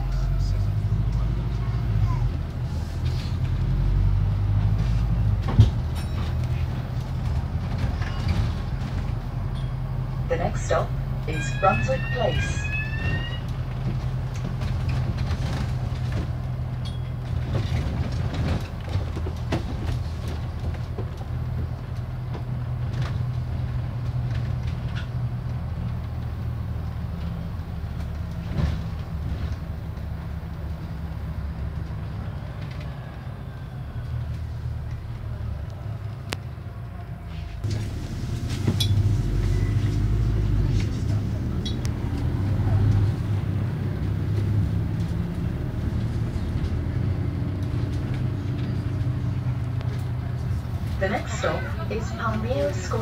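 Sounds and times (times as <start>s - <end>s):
bus engine drone: 0.0s - 53.0s
bodywork rattles and clicks: 13.6s - 26.2s.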